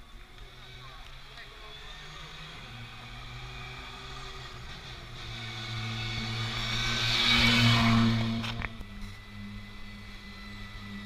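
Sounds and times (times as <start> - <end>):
rally car engine rolling past: 0.1 - 11.0.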